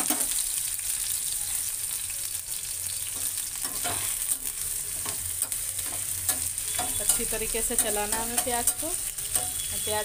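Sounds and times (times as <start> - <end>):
onions sizzling in a frying pan: 0.0 - 10.0.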